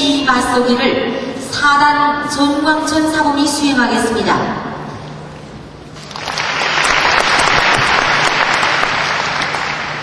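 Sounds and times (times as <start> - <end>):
audience applauding: 6.0 - 10.0.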